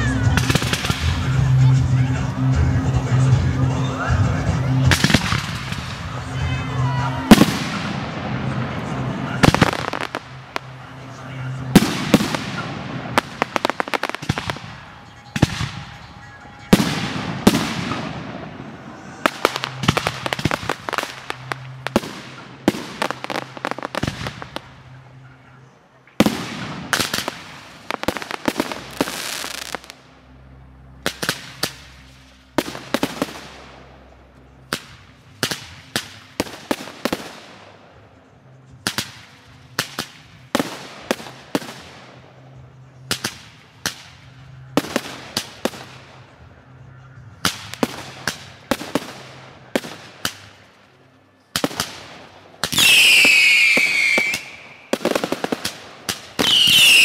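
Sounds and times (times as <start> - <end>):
fireworks bursting bangs: 0.0 - 25.2, 26.1 - 30.1, 31.0 - 46.7, 47.3 - 50.9, 51.5 - 57.0
whistling fireworks: 0.0 - 30.2, 31.0 - 57.0.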